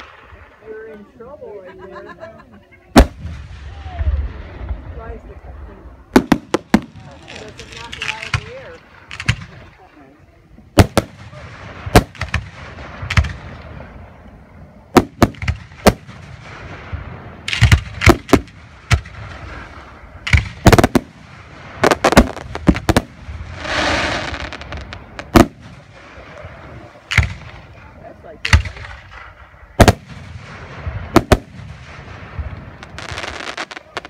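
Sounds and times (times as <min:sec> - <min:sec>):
firework crackling and hissing: 0:00.0 - 0:01.2, 0:02.9 - 0:34.0
firework shells booming: 0:06.1 - 0:09.8, 0:10.7 - 0:14.2, 0:14.8 - 0:34.0.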